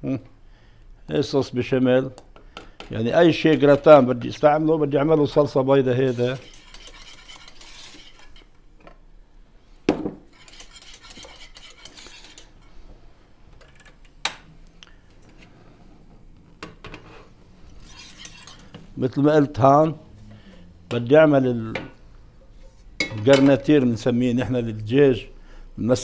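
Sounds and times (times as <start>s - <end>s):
whisk scraping saucepan: 5.1s - 8.6s, 10.3s - 12.8s, 17.0s - 19.0s.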